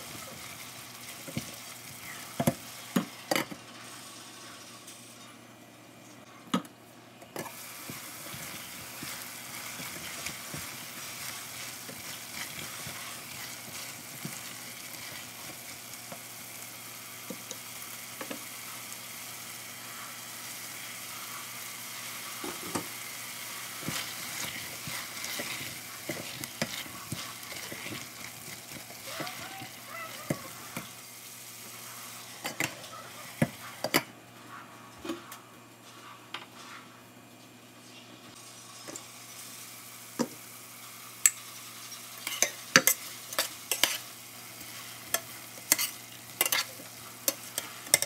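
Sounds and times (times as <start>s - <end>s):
vegetables sizzling in a pot: 0.0s - 6.3s, 7.4s - 34.2s, 38.3s - 48.0s
spatula scraping and knocking pot: 23.8s - 28.9s.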